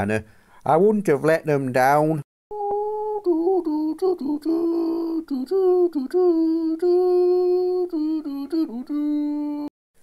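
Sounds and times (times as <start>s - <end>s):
person humming a jingle: 2.5s - 9.7s.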